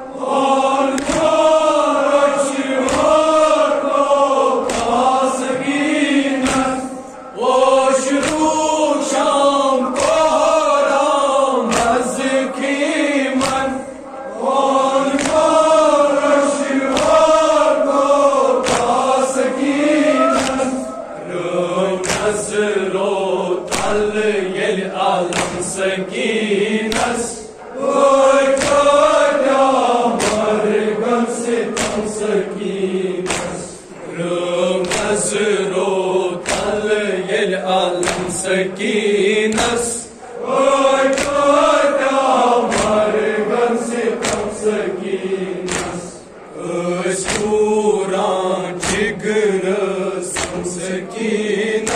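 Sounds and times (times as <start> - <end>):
group chanting in unison: 0.0 - 51.9
chest slaps: 0.9 - 1.5, 2.8 - 3.2, 4.6 - 5.8, 6.4 - 6.9, 11.7 - 12.1, 13.4 - 13.8, 15.1 - 15.7, 16.9 - 17.4, 18.6 - 19.0, 20.2 - 21.0, 22.0 - 22.4, 23.7 - 24.2, 25.3 - 25.8, 26.9 - 27.3, 28.5 - 29.0, 30.2 - 30.5, 31.7 - 32.1, 33.2 - 34.0, 34.8 - 35.3, 36.4 - 36.9, 38.0 - 38.5, 41.1 - 41.6, 42.7 - 43.0, 44.2 - 44.6, 45.6 - 46.4, 47.2 - 47.6, 48.8 - 49.2, 50.4 - 50.8.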